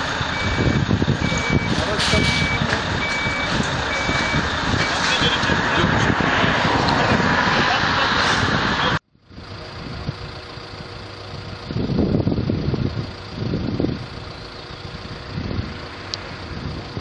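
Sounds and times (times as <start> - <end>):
traffic noise: 0.0 - 17.0
vehicle engine running: 0.0 - 17.0
car driving past: 4.2 - 9.0.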